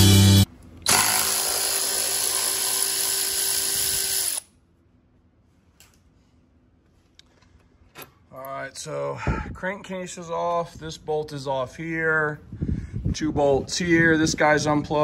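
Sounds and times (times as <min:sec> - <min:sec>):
cordless ratchet running: 0:00.9 - 0:04.5.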